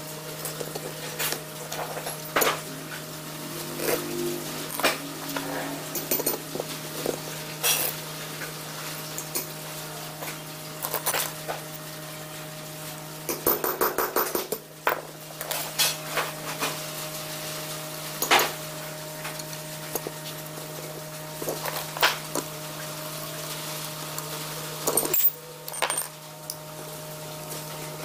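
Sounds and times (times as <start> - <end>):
metal parts clinking on iron: 24.8 - 26.1.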